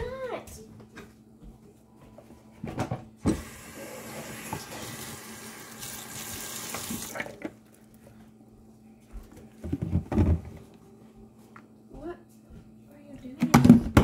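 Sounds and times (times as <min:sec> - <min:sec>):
tap water running: 0:03.2 - 0:07.4.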